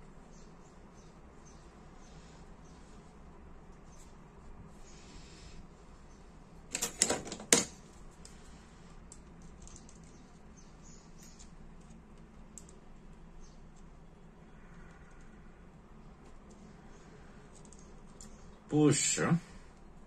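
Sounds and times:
metallic clicks and clatter: 0:09.1 - 0:10.4.

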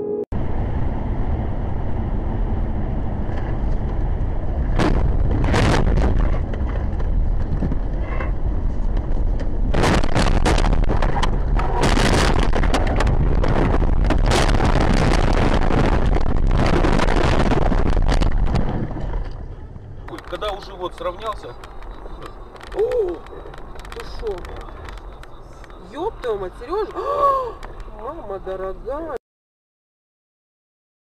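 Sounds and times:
tyre and wind rumble: 0:00.4 - 0:29.2
car crash bangs and crunches: 0:04.7 - 0:07.8, 0:09.5 - 0:19.4
car jolts: 0:04.7 - 0:07.8, 0:09.5 - 0:19.5.

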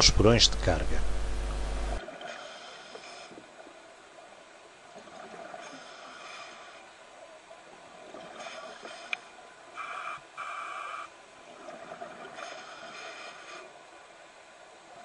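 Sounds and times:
scuba regulator breathing underwater: 0:02.0 - 0:03.6, 0:05.2 - 0:06.9, 0:11.8 - 0:13.8.

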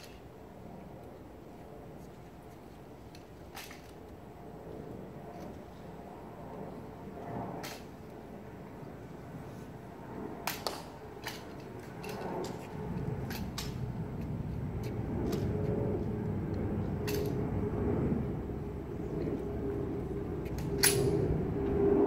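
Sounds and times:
low rumble: 0:11.2 - 0:22.0.

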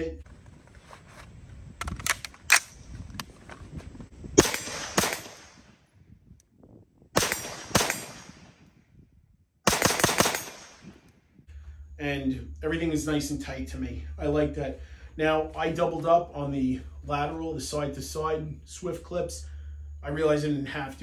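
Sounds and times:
rifle gunshots: 0:04.4 - 0:05.7, 0:07.1 - 0:08.7, 0:09.6 - 0:11.0.

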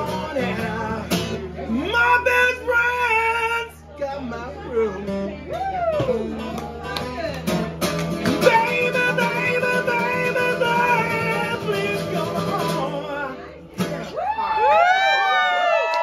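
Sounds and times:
man singing: 0:00.0 - 0:14.1
strummed acoustic guitar: 0:00.0 - 0:14.2.

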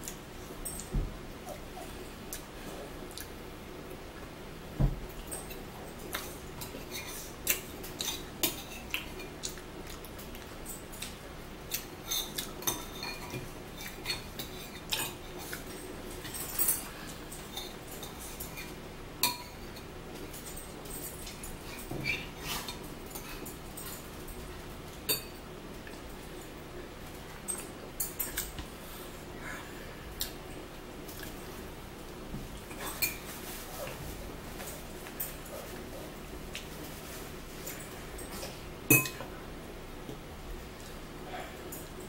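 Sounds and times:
cutlery clinking against dishes: 0:11.7 - 0:24.0, 0:25.0 - 0:25.4, 0:32.8 - 0:33.4, 0:37.6 - 0:39.3.

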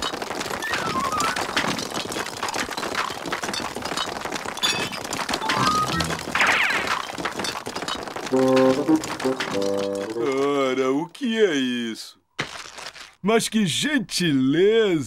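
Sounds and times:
ice chunks clinking and cracking: 0:00.0 - 0:10.8, 0:12.4 - 0:13.2
cartoon orchestral music: 0:05.5 - 0:06.4, 0:08.3 - 0:10.4.

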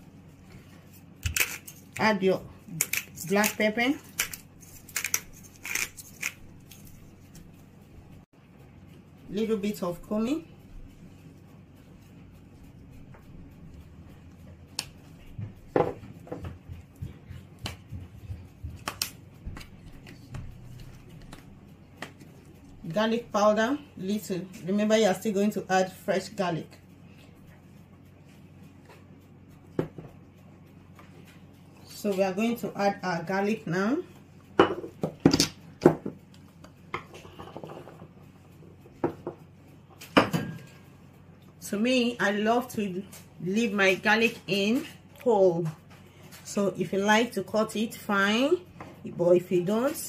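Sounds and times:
spice shakers and jar lids clicking: 0:02.8 - 0:06.4.

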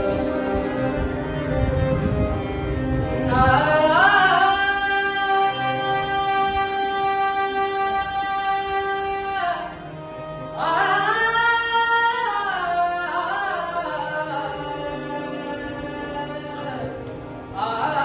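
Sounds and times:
harmonium: 0:00.0 - 0:18.0
boy singing: 0:03.3 - 0:09.8, 0:10.6 - 0:17.0.

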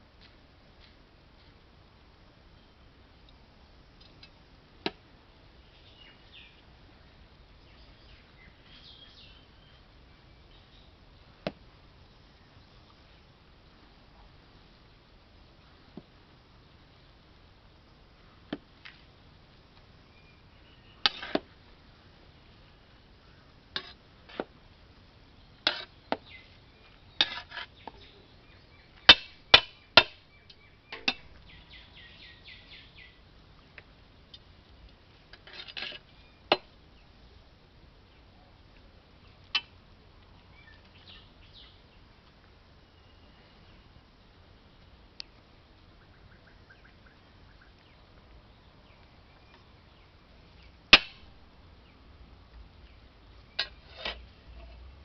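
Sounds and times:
ladle scraping metal pot: 0:23.8 - 0:24.4, 0:25.7 - 0:25.9, 0:27.2 - 0:27.7, 0:53.6 - 0:54.8.

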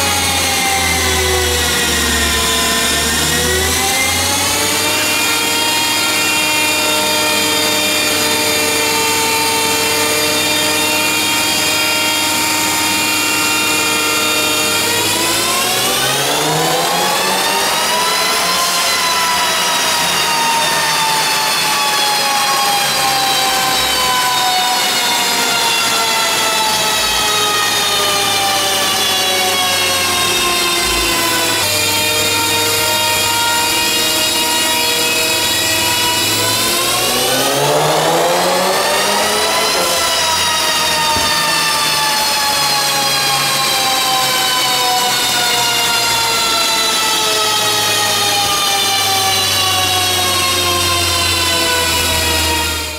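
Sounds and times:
car engine whine on dyno: 0:00.0 - 0:52.9
car engine running hard: 0:34.3 - 0:42.4.

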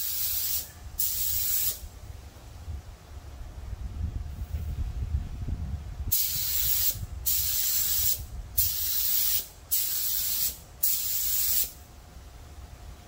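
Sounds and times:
air spray gun hissing: 0:00.0 - 0:01.8, 0:06.1 - 0:11.8.

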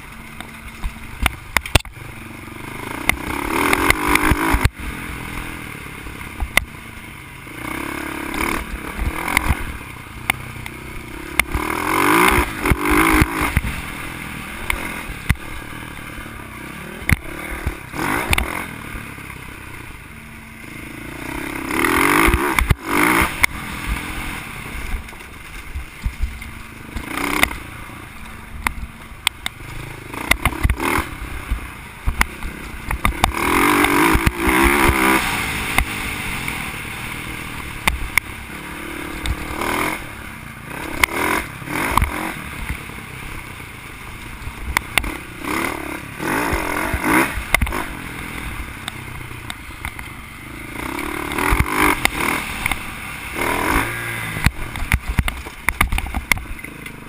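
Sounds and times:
dirt bike engine revving: 0:00.0 - 0:57.0
bike knocks and rattles: 0:24.9 - 0:27.7, 0:53.8 - 0:57.0.

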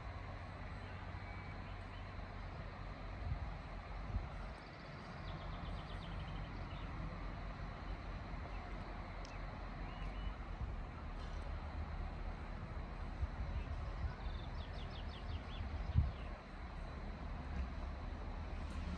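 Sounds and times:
locomotive rumble and hum: 0:00.0 - 0:18.9.

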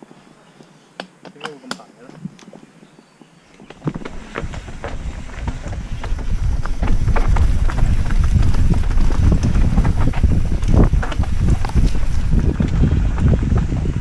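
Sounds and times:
wind buffeting microphone: 0:02.1 - 0:14.0
bike rolling on dirt trail: 0:03.6 - 0:14.0
bike frame rattling and clicking: 0:03.8 - 0:14.0.

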